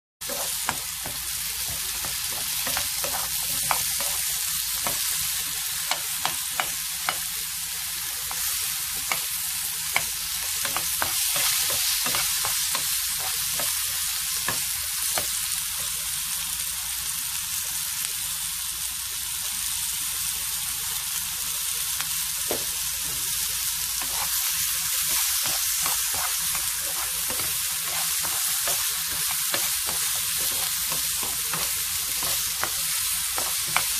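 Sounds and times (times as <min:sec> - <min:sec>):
spatula clicking and tapping: 0:00.2 - 0:07.3, 0:08.2 - 0:13.8, 0:24.0 - 0:24.4, 0:25.0 - 0:33.9
vegetables sizzling in oil: 0:00.2 - 0:33.9.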